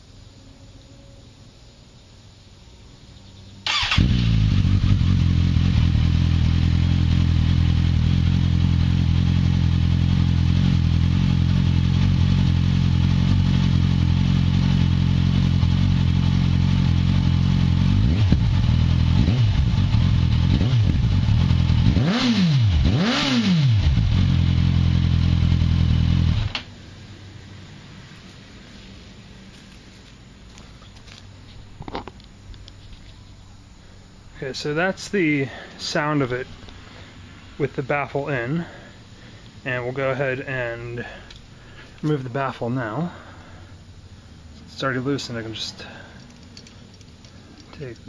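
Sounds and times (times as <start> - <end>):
motorcycle engine idling and revving: 3.6 - 30.1.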